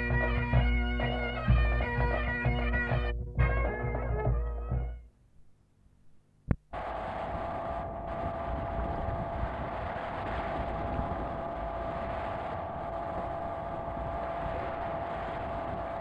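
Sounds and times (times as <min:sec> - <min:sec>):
boat engine drone: 0:06.7 - 0:16.0.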